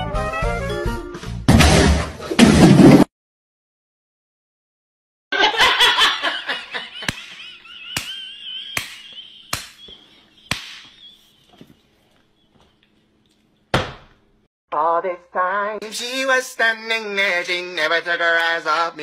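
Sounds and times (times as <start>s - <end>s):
laughter-like voice sounds: 5.4s - 10.6s
sharp slaps: 7.0s - 11.0s.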